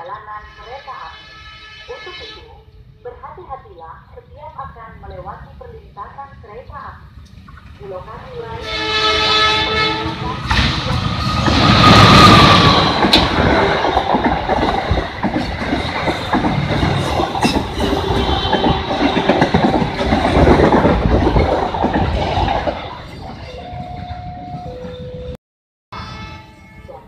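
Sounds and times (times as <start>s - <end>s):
locomotive rushing past: 7.3s - 25.3s
train wheels clattering: 9.7s - 23.4s.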